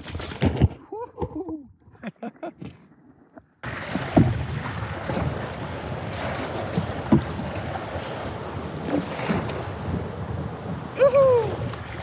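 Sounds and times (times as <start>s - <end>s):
surf breaking and rushing: 3.6s - 12.0s
wind buffeting microphone: 3.8s - 12.0s.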